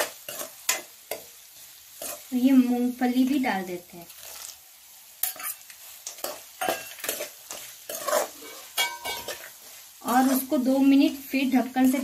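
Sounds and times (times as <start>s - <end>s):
spoon scraping pan: 0.0s - 2.6s, 5.2s - 10.8s
food frying in oil: 0.0s - 12.0s.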